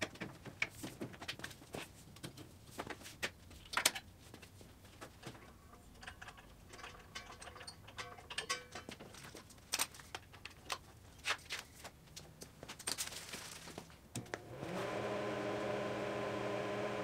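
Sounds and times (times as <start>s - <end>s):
welding gear clicks and clanks: 5.9s - 11.6s.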